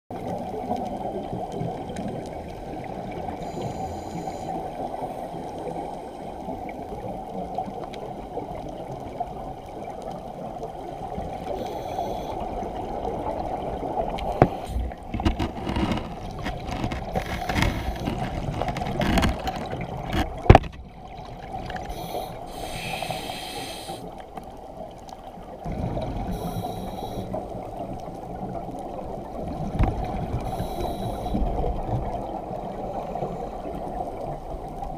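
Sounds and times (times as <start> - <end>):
muffled underwater noise: 11.4 - 19.7, 21.6 - 24.2, 25.7 - 29.2, 29.8 - 34.9.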